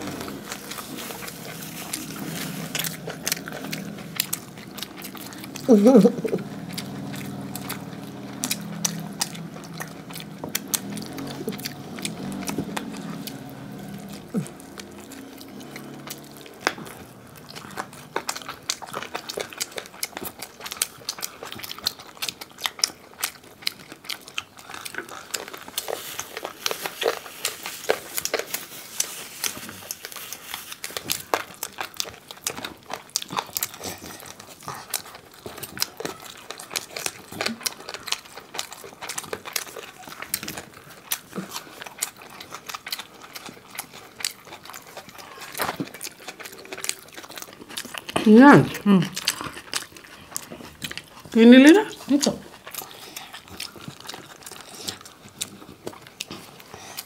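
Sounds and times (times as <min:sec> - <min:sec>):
fingers mixing rice: 0:00.0 - 0:48.2
chewing and mouth clicks: 0:00.0 - 0:57.0.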